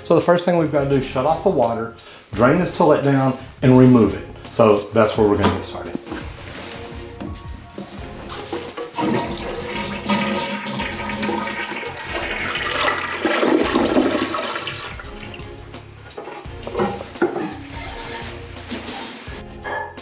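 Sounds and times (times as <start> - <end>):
toilet water rushing down bowl: 7.8 - 15.5.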